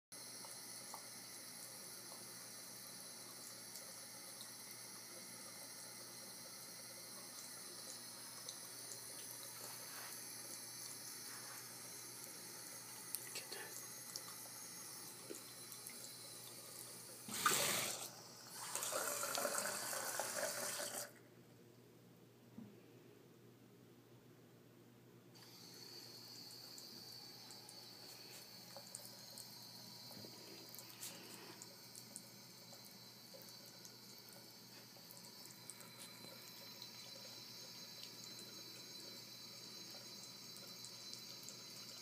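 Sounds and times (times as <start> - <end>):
faucet running into sink: 0.2 - 21.1, 25.4 - 42.0.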